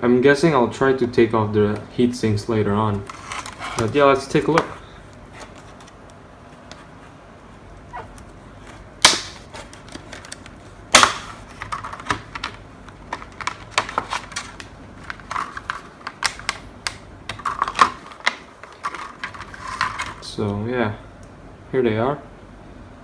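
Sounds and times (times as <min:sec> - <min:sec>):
plastic blister pack snapping: 0:09.0 - 0:20.2
plastic clicking and crackling: 0:09.1 - 0:20.2.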